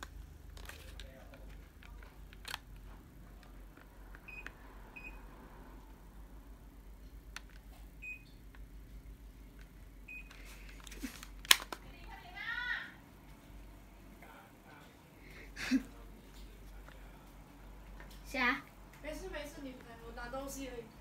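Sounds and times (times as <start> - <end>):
air conditioner short beeps: 4.2 - 5.2, 8.0 - 8.5, 10.0 - 10.4.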